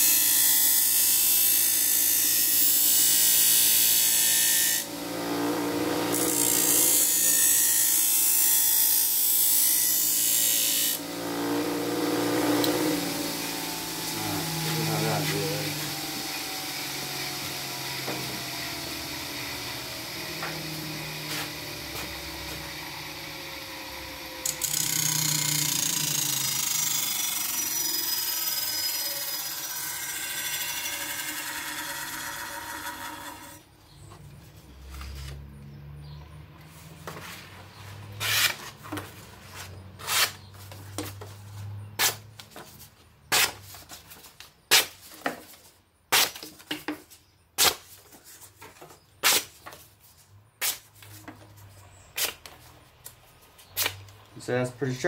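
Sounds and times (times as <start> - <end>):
bench grinder running: 0.0 - 33.6.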